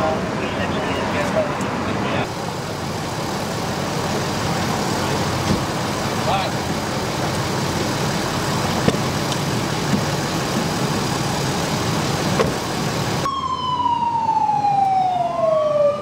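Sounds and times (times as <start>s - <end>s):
fire truck engine idling: 0.0s - 16.0s
ambulance siren wailing: 13.2s - 16.0s.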